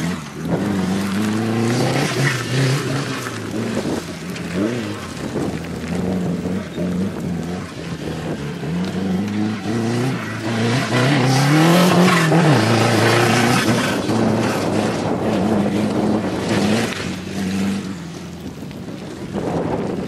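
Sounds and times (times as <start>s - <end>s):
buggy engine revving: 0.0s - 20.0s.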